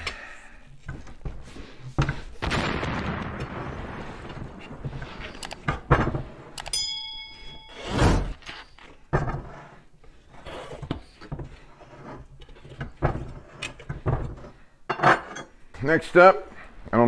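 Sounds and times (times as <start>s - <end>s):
short metallic ring: 6.6s - 8.7s.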